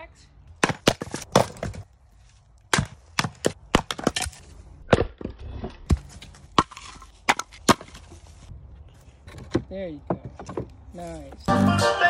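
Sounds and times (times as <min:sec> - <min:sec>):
axe chopping firewood: 0:00.6 - 0:01.9, 0:02.6 - 0:08.1.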